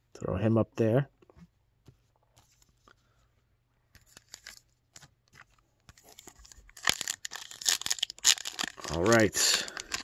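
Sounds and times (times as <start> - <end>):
trading cards rustling: 3.9 - 10.0
wrapper rustling: 4.0 - 10.0.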